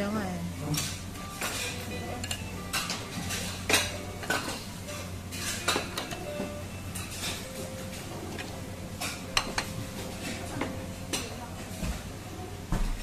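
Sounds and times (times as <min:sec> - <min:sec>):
steady low hum: 0:00.0 - 0:13.0
clinking plates and cups: 0:00.8 - 0:08.0.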